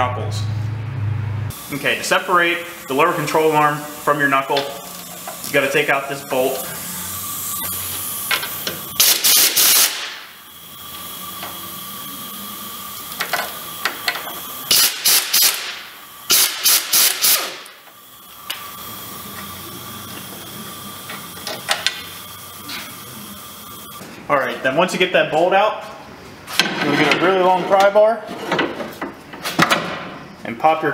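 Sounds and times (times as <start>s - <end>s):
air ratchet whirring: 1.5s - 24.0s.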